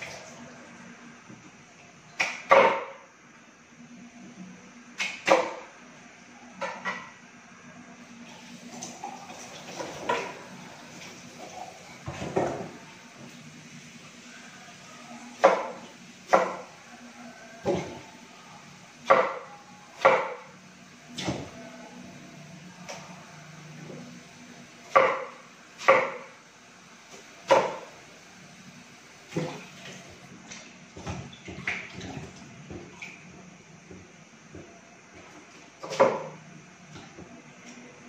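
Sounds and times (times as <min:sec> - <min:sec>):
knife chopping on cutting board: 0:24.9 - 0:26.3.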